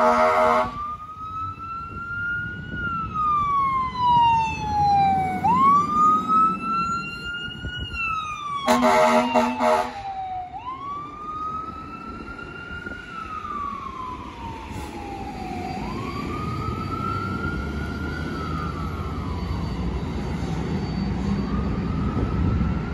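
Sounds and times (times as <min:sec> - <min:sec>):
fire engine siren wailing: 0:00.0 - 0:22.9
low traffic rumble: 0:00.0 - 0:22.9.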